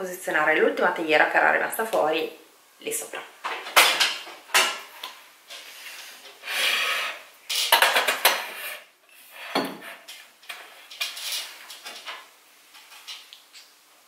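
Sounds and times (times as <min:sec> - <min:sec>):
kitchenware clinking and scraping: 0:03.4 - 0:13.6.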